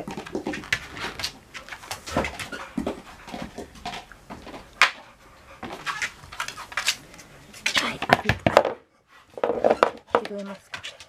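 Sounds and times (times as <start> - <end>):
dogs panting: 0.2 - 7.6.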